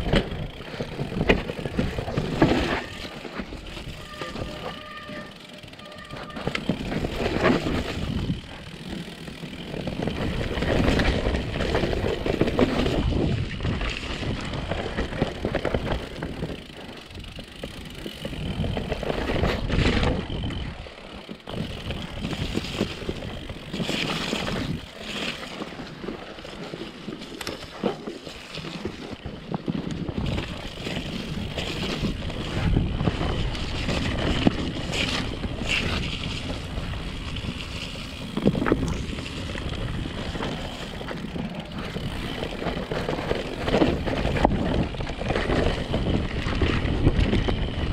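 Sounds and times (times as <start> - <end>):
bike knocking and rattling: 0.0 - 47.9
bike tyres rolling on dirt: 0.0 - 47.9
wind buffeting microphone: 6.4 - 20.8, 29.8 - 47.9.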